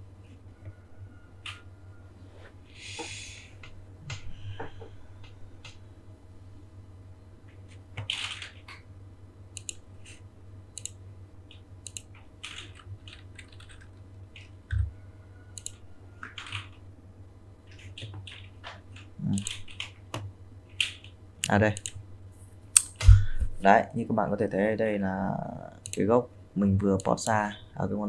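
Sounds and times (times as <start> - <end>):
low steady hum: 0.0 - 28.0
keyboard and mouse clicks: 9.6 - 9.8, 10.8 - 14.9, 15.6 - 16.8, 17.7 - 22.0.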